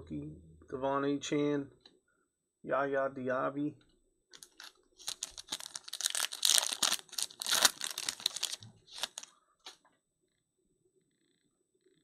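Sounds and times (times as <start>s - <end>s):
foil wrapper tearing and crinkling: 4.4s - 9.3s.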